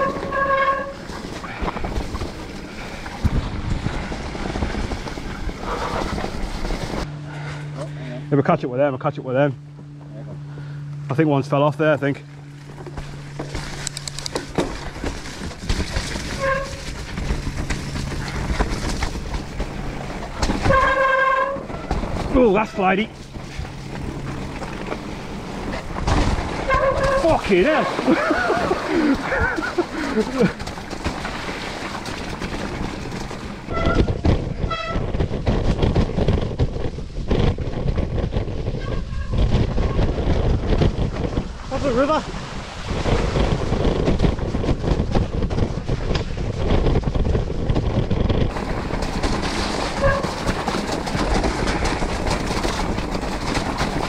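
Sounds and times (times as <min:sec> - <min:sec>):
bike clattering over bumps: 0:00.0 - 0:07.5, 0:12.4 - 0:54.0
tyre and wind noise: 0:00.0 - 0:07.5, 0:11.8 - 0:54.0
disc brakes squealing: 0:26.6 - 0:29.9.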